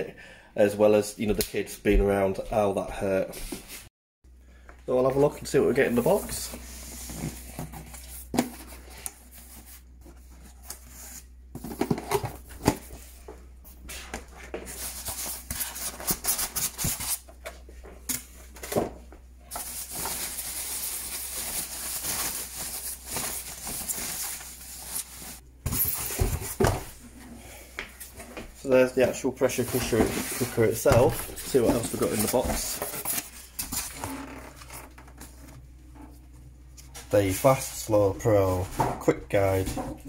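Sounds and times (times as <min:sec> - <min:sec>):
plastic wrapping crinkling: 0:19.5 - 0:26.2
cardboard scraping and rustling: 0:29.0 - 0:35.6.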